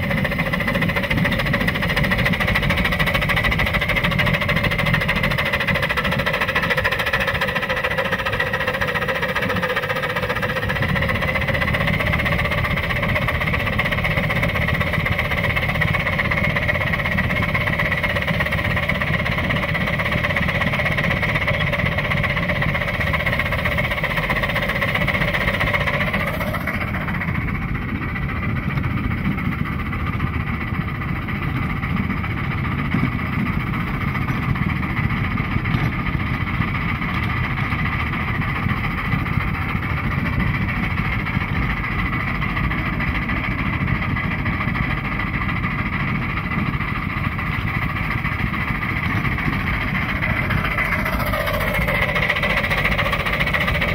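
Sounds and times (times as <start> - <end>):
steady whining hum: 0.0 - 53.9
steam locomotive rumbling: 0.0 - 53.9.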